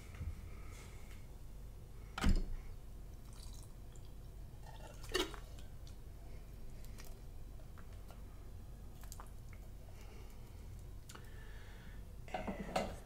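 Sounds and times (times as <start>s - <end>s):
faint liquid drips: 3.2s - 7.2s, 8.9s - 11.4s.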